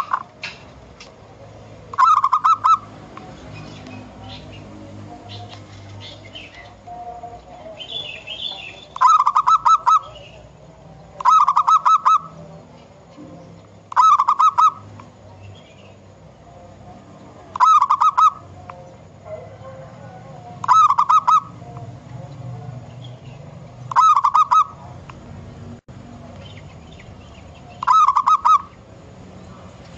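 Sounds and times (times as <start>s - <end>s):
dove cooing: 0.0s - 0.4s, 1.9s - 10.5s, 11.1s - 12.6s, 13.2s - 15.0s, 17.4s - 21.8s, 23.9s - 24.9s, 27.6s - 28.8s.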